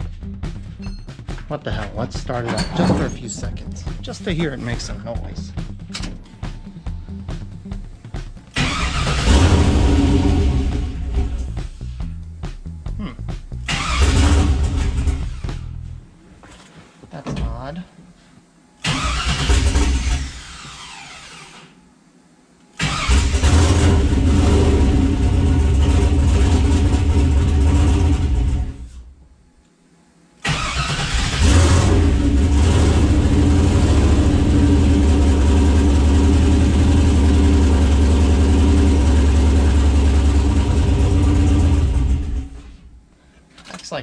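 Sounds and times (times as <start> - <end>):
truck engine starting and stalling: 8.5 - 11.5, 13.6 - 15.7, 18.8 - 21.7, 22.8 - 29.0, 30.4 - 42.8.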